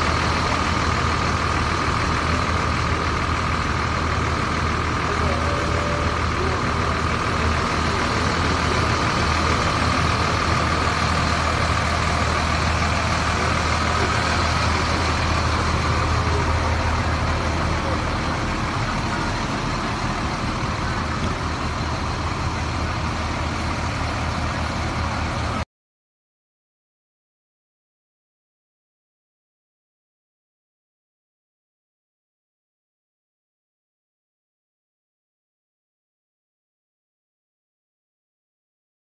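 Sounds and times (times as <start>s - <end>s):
vehicle engine idling: 0.0s - 25.7s.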